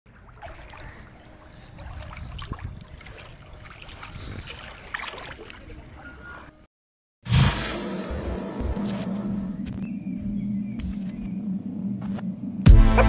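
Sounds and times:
small waves lapping: 0:00.1 - 0:06.6
wind rumble on microphone: 0:01.4 - 0:04.9.

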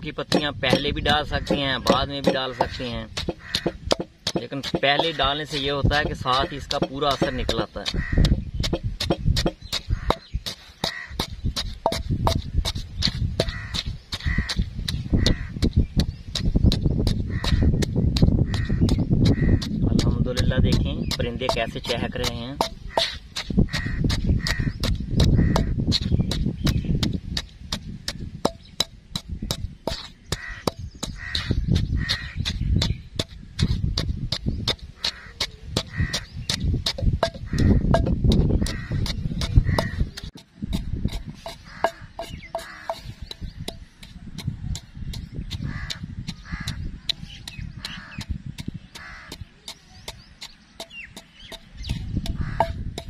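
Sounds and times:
birds calling: 0:00.0 - 0:53.0
wooden pestle pounding wet mash: 0:00.0 - 0:53.0
fast sharp clicks: 0:00.3 - 0:53.0
crows cawing: 0:01.4 - 0:04.1, 0:06.3 - 0:08.4, 0:09.9 - 0:11.3, 0:13.4 - 0:14.6, 0:15.2 - 0:15.6, 0:17.2 - 0:17.8, 0:18.4 - 0:19.8, 0:22.9 - 0:25.8, 0:30.3 - 0:32.4, 0:34.9 - 0:36.4, 0:37.3 - 0:40.1, 0:41.6 - 0:43.2, 0:45.6 - 0:46.9, 0:47.8 - 0:48.3, 0:48.9 - 0:49.5, 0:52.3 - 0:52.8.

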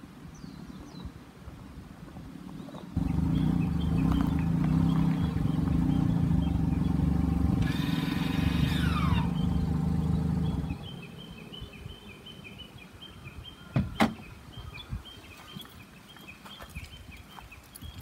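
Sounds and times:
car engine idling: 0:03.0 - 0:11.2.

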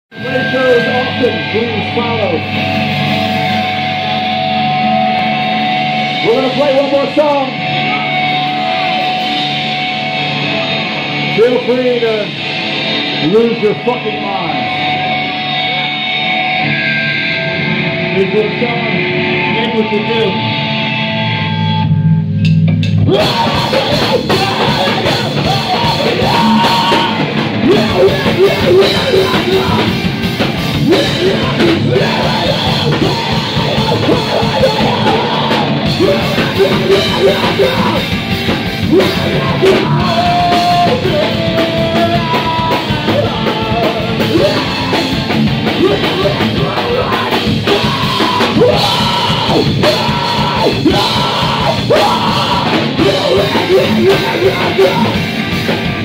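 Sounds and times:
live rock band playing loudly: 0:00.1 - 0:56.0
person yelling and singing: 0:23.0 - 0:55.5.

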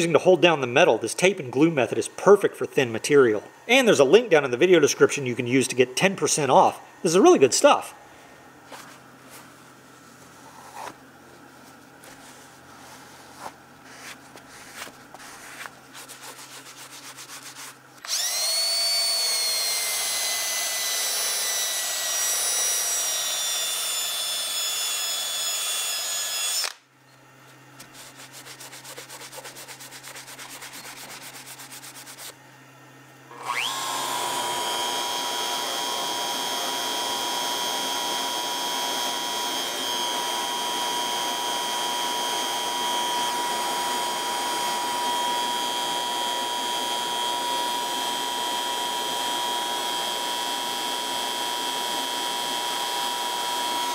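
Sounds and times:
paper towel rubbing metal: 0:11.6 - 0:17.9, 0:27.8 - 0:32.4
router spindle whine: 0:18.0 - 0:26.8, 0:33.3 - 0:53.9.

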